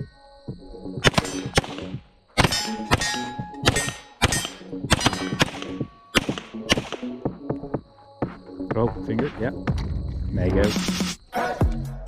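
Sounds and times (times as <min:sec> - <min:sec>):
background music: 0:00.0 - 0:12.0
handgun shots: 0:01.0 - 0:07.2.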